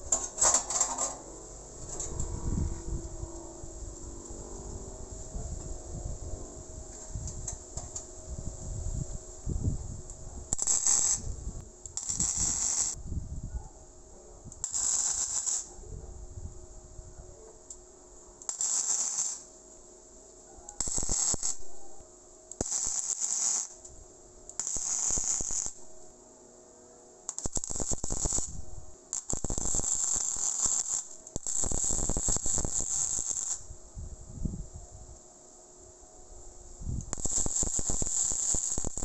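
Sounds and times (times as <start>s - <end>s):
arc welding: 10.5s - 13.0s, 14.6s - 15.7s, 18.4s - 19.6s, 20.8s - 21.9s, 22.5s - 26.0s, 27.3s - 33.8s, 36.8s - 39.0s.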